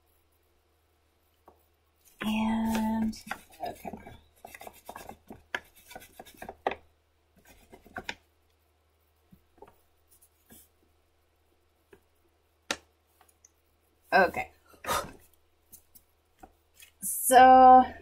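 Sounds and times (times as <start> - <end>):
pencil scratching on paper: 2.1 - 6.7, 7.4 - 8.1.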